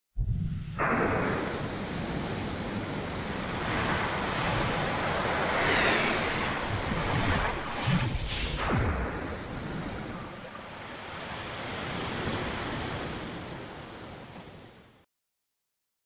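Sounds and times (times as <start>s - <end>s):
rushing whooshing sound effects: 0.2s - 10.6s.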